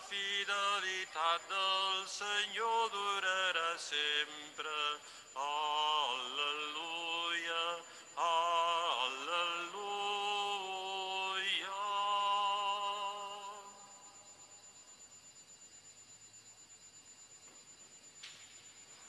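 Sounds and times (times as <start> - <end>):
cantor singing: 0.0 - 14.2
faint steady high tone: 0.0 - 19.0.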